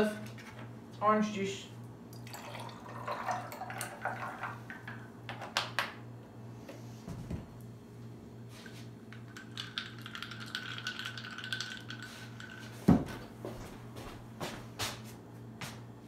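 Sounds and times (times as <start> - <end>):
ice cubes clinking in a glass: 9.2 - 12.7.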